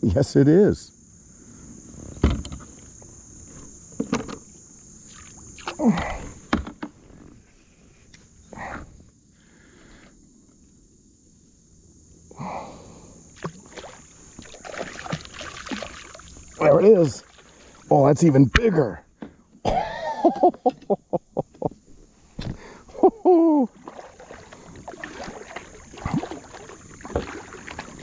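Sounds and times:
high-pitched insect drone: 0.0 - 19.1, 19.7 - 28.0
fish splashing at surface: 13.4 - 17.9, 23.7 - 28.0.

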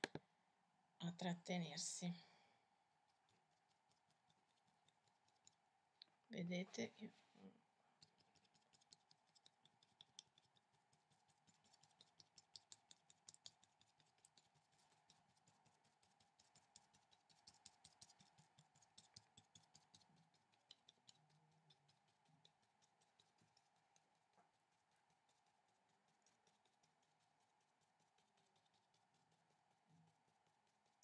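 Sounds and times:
paintbrush tapping on paper: 0.0 - 0.2, 8.0 - 15.4
faint steady hum: 0.0 - 31.0.

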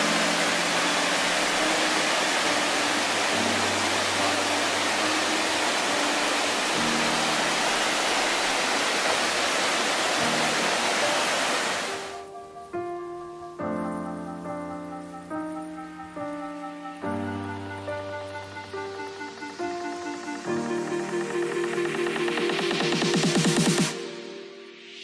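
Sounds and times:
stream rushing over boulders: 0.0 - 12.3
soft background music: 0.0 - 25.0.

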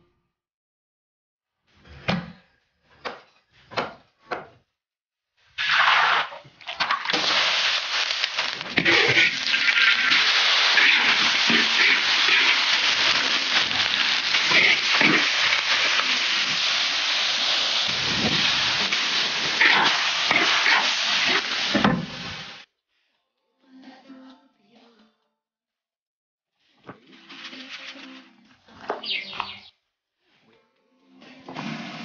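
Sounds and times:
chicken sizzling in hot oil: 5.5 - 22.7
spatula scraping a wok: 7.1 - 22.6.

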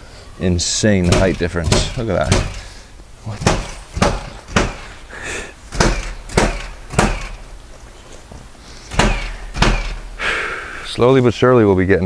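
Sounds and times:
sharp knocks: 1.0 - 5.0, 5.7 - 7.7, 8.9 - 10.4.

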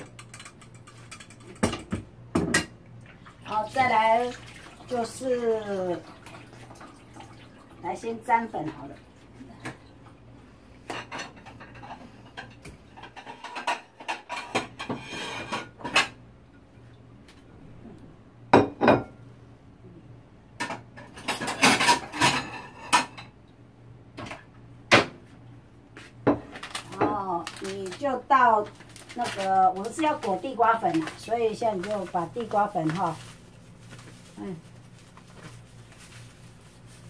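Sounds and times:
plates and bowls clattering: 0.0 - 2.8, 10.9 - 16.2, 18.6 - 19.2, 20.6 - 23.4.

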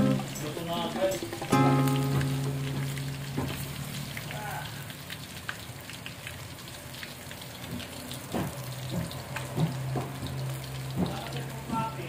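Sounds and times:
fish deep-frying in oil: 0.0 - 12.0
oil popping and crackling: 0.0 - 12.0.

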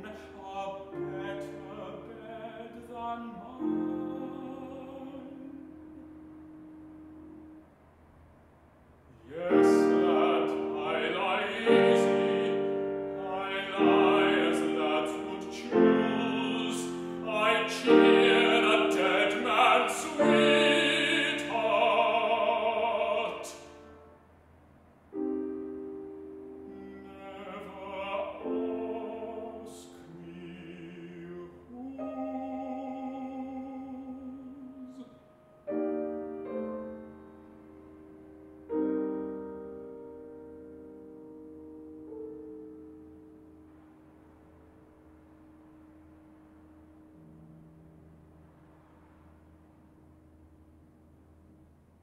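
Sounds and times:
baritone singing: 0.0 - 6.0, 9.2 - 23.8, 26.7 - 36.6
grand piano accompaniment: 0.0 - 8.0, 9.0 - 24.5, 25.1 - 52.0.

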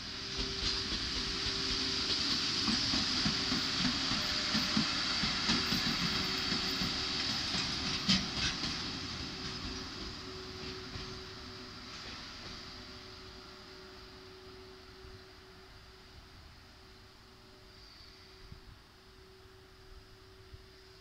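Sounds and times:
freight train passing: 0.0 - 21.0
wheels clacking over rail joints: 0.5 - 12.7.

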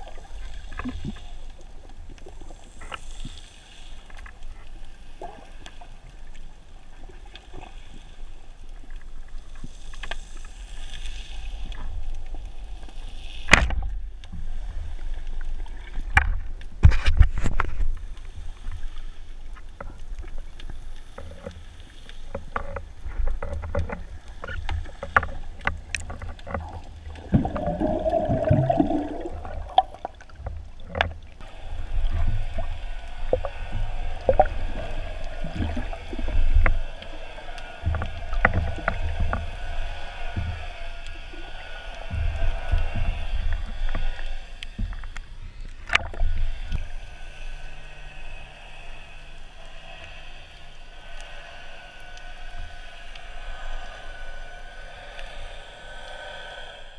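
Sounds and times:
underwater rumble: 0.0 - 56.9
clicks and knocks underwater: 15.2 - 18.2, 19.5 - 31.4, 37.8 - 40.8, 42.1 - 46.9
bubbling gurgle: 27.0 - 31.5.

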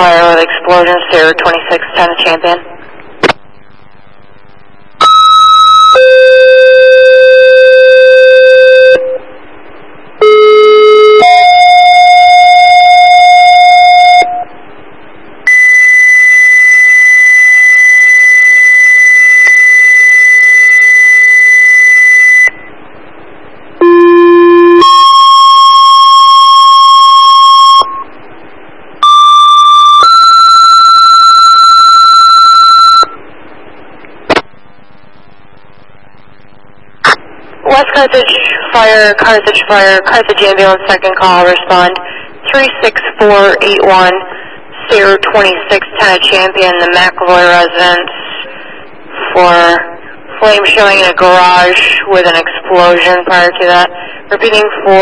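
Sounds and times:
radio hiss: 0.0 - 5.0, 34.1 - 55.0.

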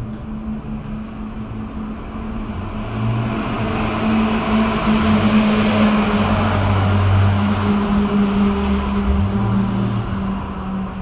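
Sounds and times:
low drone: 0.0 - 11.0.

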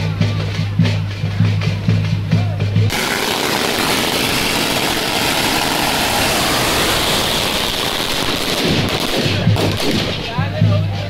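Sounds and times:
firecrackers going off: 2.9 - 11.0.

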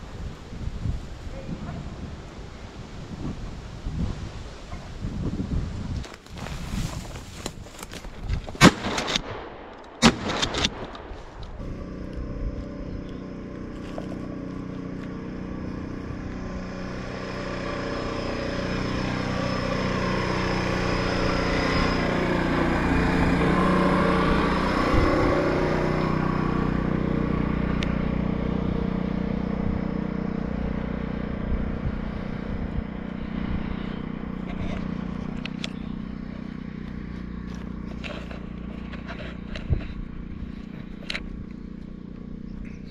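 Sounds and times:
petrol generator running: 11.4 - 42.9.

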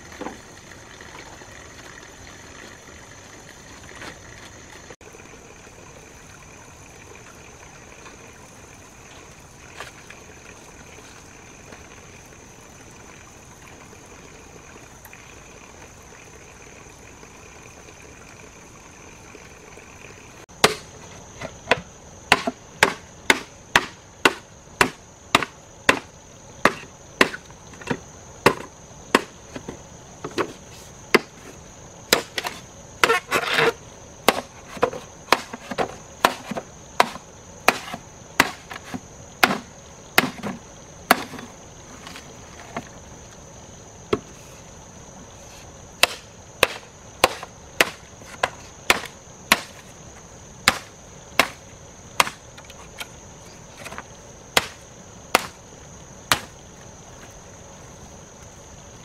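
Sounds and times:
axe chopping wood: 20.6 - 29.4, 31.1 - 31.4, 32.1 - 41.4, 46.0 - 49.8, 50.6 - 51.6, 52.2 - 52.4, 53.8 - 55.6, 56.3 - 56.6.

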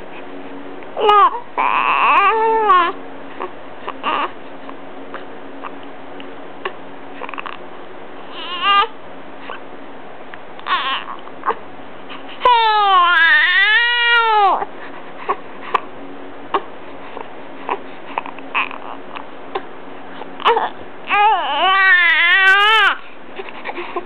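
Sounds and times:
baby crying and whimpering: 1.0 - 4.4, 7.2 - 7.6, 8.3 - 8.9, 10.6 - 11.6, 12.4 - 15.9, 16.5 - 19.6, 20.3 - 24.0.

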